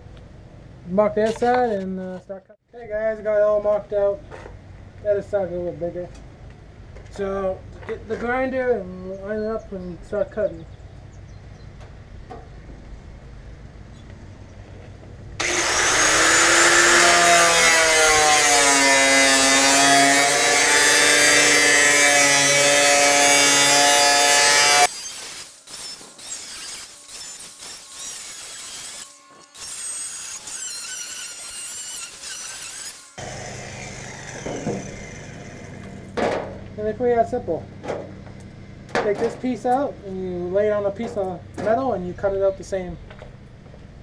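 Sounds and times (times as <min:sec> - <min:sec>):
angle grinder cutting metal: 0:15.4 - 0:36.2.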